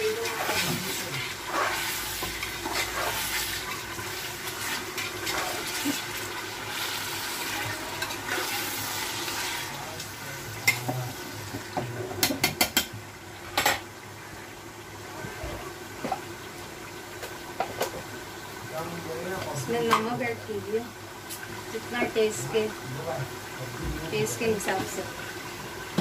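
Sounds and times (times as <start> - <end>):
meat sizzling in a pot: 0.0 - 26.0
metal spoon scraping a pot: 0.2 - 3.6.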